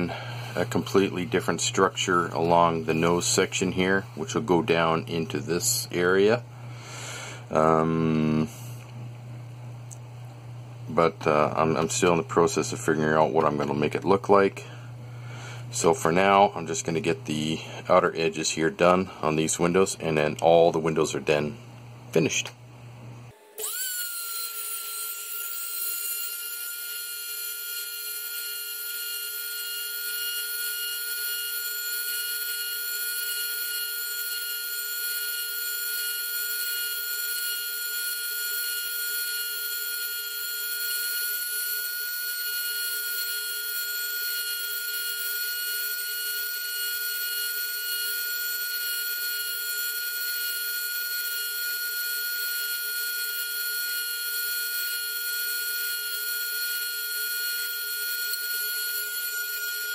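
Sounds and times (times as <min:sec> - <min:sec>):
small power drill whining: 0:00.0 - 0:04.0, 0:23.3 - 0:59.9.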